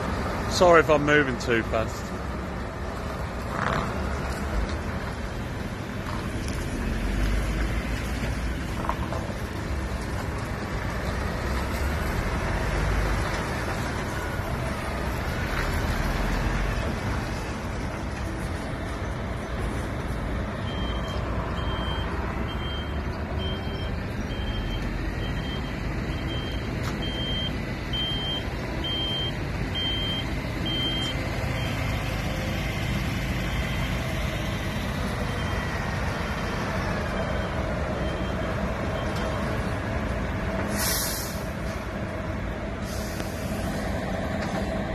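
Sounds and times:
lorry diesel engine: 0.0 - 44.9
reversing alarm beeping: 20.6 - 31.9, 33.4 - 34.1, 35.2 - 35.8, 37.0 - 39.6
air brake hissing: 40.6 - 41.8, 42.8 - 43.8.

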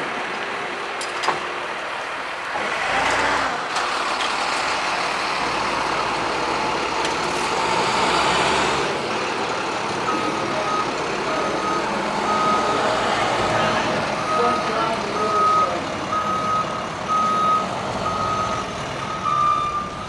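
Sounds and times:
tow truck engine running: 0.0 - 20.0
reversing alarm beeping: 10.1 - 13.1, 14.2 - 20.0.

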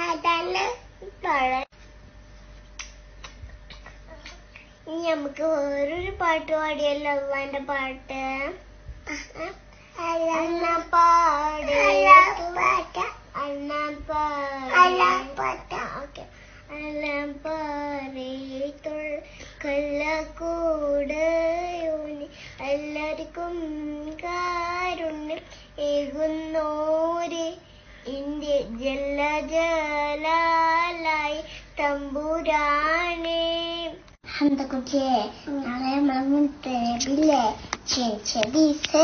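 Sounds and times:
girl singing: 10.0 - 39.0.

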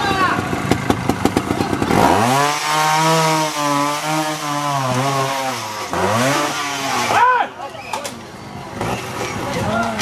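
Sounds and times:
motorcycle engine revving: 0.0 - 7.2.

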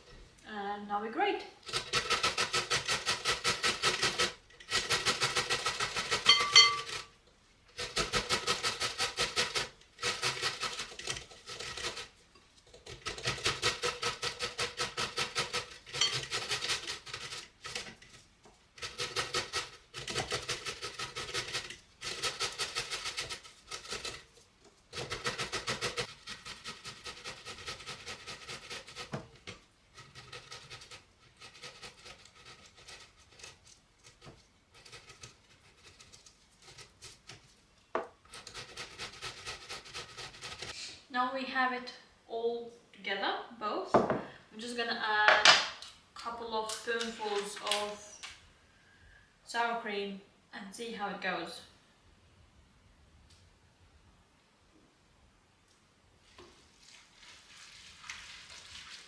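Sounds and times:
knife cutting vegetables: 7.7 - 40.8.

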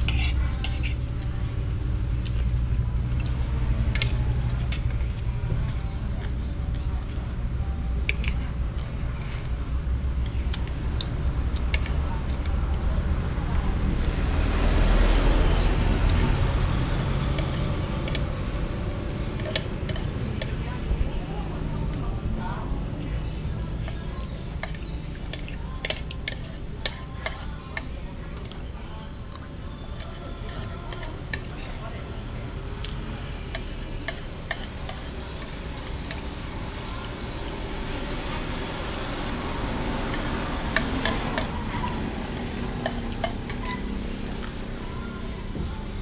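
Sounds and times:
metal spoon scraping a plate: 0.0 - 1.5, 8.0 - 9.5, 17.4 - 18.2, 19.4 - 20.6, 24.5 - 28.6, 29.8 - 31.8, 33.5 - 36.3, 39.5 - 44.5
vehicle passing by rumbling: 10.8 - 20.4
metal spoon clinking on plate: 42.8 - 43.9.

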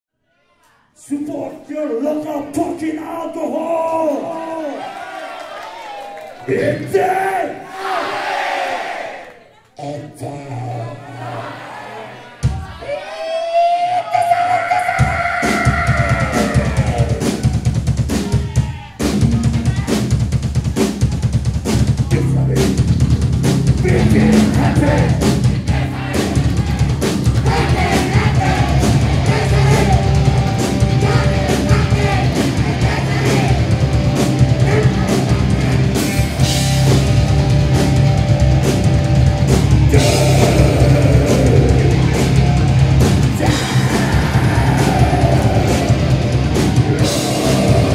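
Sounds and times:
grindcore band playing live: 14.8 - 47.9.

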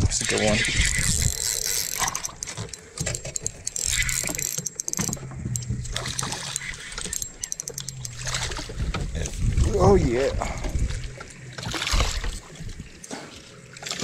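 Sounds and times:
fishing reel cranking: 0.0 - 9.9
water and wind hiss: 0.0 - 14.0
small clicks: 0.2 - 8.6.

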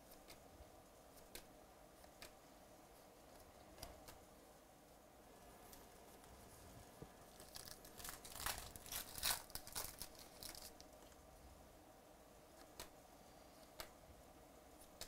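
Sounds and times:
foil wrapper ripping: 7.3 - 10.8.

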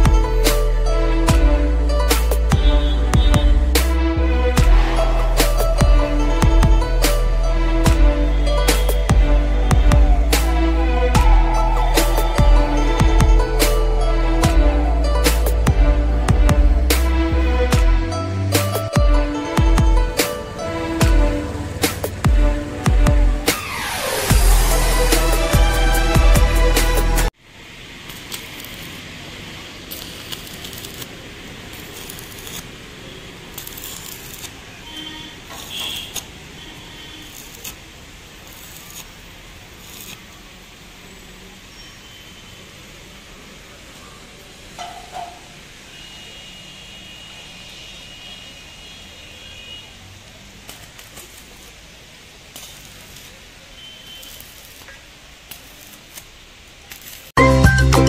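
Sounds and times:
steady background hiss: 27.3 - 44.8, 45.5 - 57.4.

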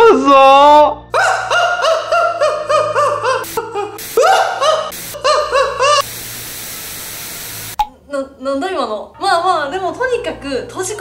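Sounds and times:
man laughing loudly: 1.2 - 6.1
tv static hiss: 4.9 - 5.2, 5.9 - 7.8.

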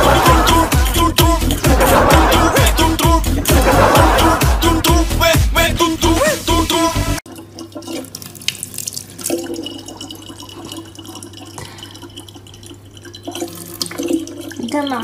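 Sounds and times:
tap water running into jug: 7.2 - 15.0.

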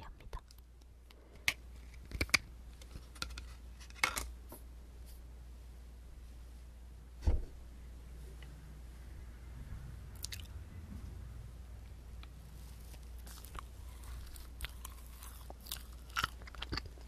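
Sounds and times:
steady low hum: 0.0 - 17.0
loud thump: 7.2 - 7.6.

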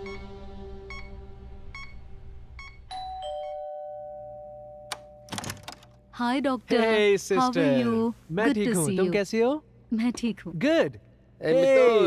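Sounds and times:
patient monitor beeps: 0.0 - 0.3, 0.9 - 2.9
two-tone doorbell ringing: 2.6 - 5.7
door latch click: 4.9 - 5.9.

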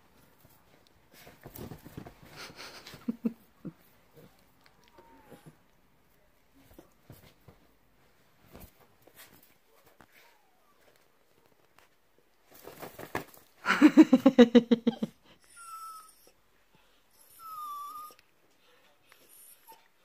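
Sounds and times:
dog whining: 15.0 - 16.4, 17.2 - 18.2.

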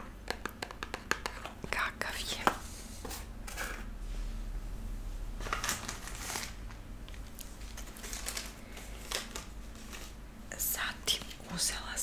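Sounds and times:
packaging crinkling and rustling: 5.4 - 10.2.

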